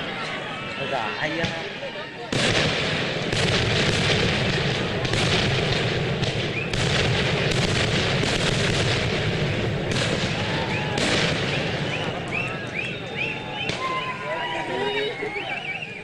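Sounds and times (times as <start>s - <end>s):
fireworks booming and crackling: 1.3s - 14.3s
sharp firework bangs: 2.3s - 12.6s.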